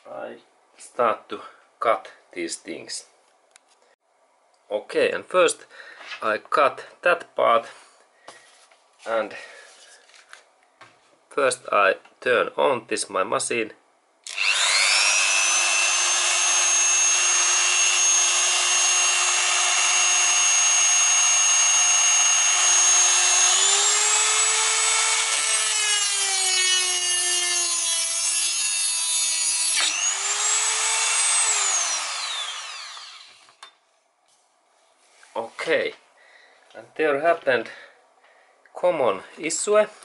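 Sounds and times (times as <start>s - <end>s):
cut-off wheel cutting: 14.2s - 33.6s
rotary tool whining: 14.2s - 33.7s.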